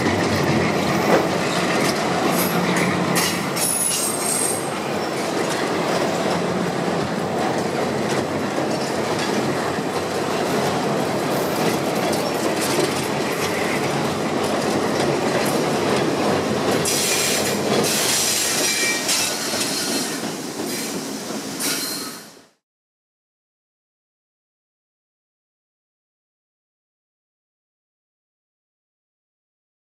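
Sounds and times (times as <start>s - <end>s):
train wheels rumbling on bridge: 0.0s - 22.4s
wheel squeal: 16.9s - 20.9s, 21.6s - 22.3s.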